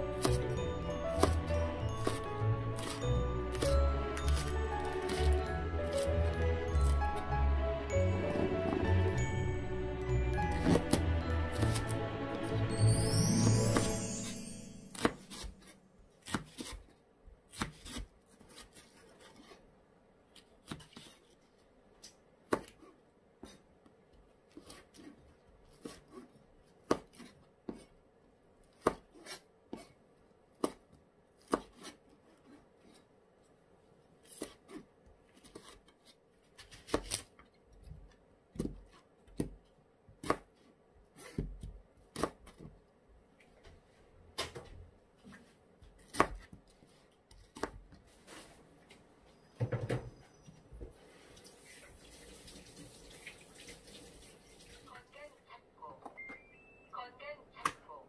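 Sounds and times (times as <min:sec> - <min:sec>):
knife chopping on cutting board: 0:00.1 - 0:07.0, 0:10.5 - 0:12.4, 0:14.9 - 0:16.9, 0:17.5 - 0:19.5, 0:22.5 - 0:23.6, 0:31.4 - 0:32.4, 0:40.2 - 0:40.5, 0:41.2 - 0:42.7, 0:46.0 - 0:46.6.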